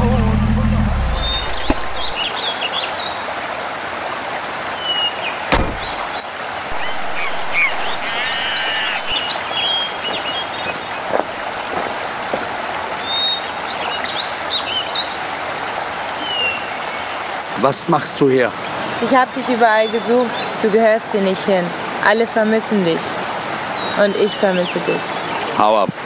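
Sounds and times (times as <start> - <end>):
bird chirps: 0.6 - 2.3, 5.5 - 10.4
river rushing over rocks: 1.2 - 17.5
axe striking wood: 1.6 - 2.0, 5.5 - 6.0.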